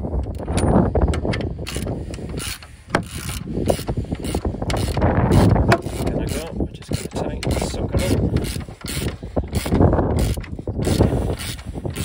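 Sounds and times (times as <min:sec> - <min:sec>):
ratchet clicking: 0:00.4 - 0:12.0.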